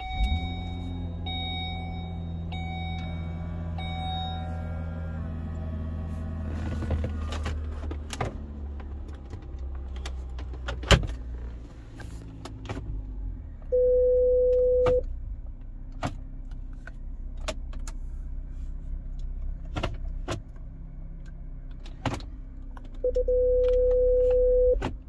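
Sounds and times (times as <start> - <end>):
electronic beep: 0.0 - 4.5, 13.7 - 15.0, 23.0 - 24.8
low steady hum: 22.4 - 24.9.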